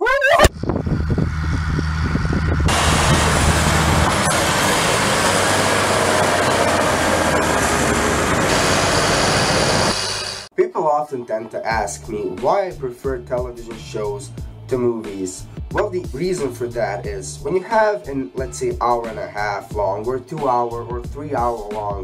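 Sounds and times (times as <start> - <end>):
deep bass tone: 0.5 - 5.6, 15.4 - 17.5
rushing wash of noise: 0.5 - 10.5.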